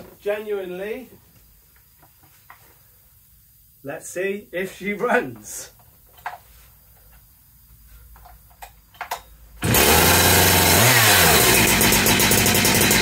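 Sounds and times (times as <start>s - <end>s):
chainsaw engine running loud: 9.6s - 13.0s.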